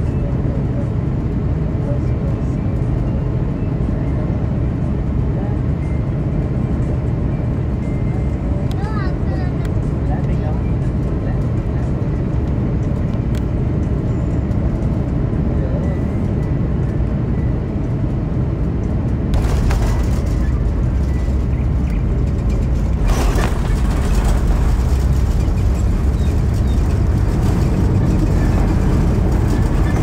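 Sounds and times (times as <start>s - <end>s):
jet engine and airflow rumble: 0.0s - 30.0s
thrust reverser roar: 19.3s - 30.0s
wheels rolling on runway: 19.4s - 30.0s.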